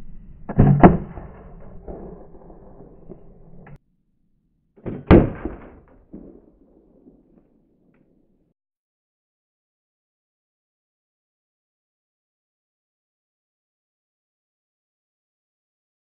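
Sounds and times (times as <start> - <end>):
railgun loud bangs: 0.5 - 3.2, 4.8 - 7.4.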